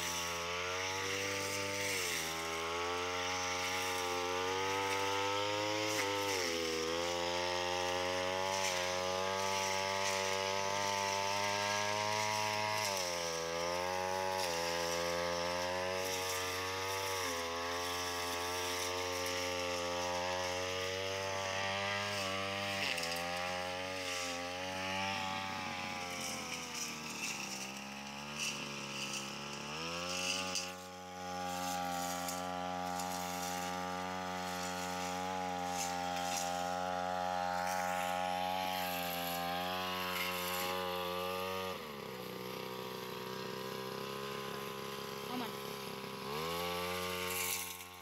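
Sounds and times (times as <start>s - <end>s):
brush cutter engine: 0.0s - 48.0s.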